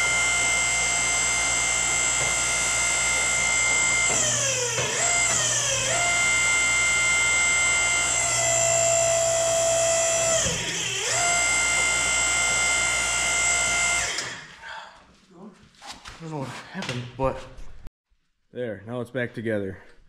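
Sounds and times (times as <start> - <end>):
hydraulic pump whining: 0.0 - 14.6.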